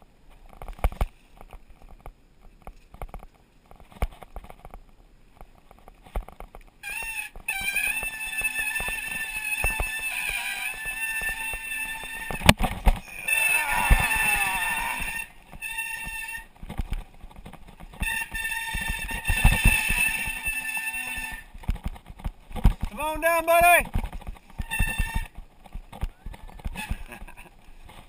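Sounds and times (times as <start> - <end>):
bike rattling over bumps: 0.0 - 28.0
high whine: 7.2 - 16.6.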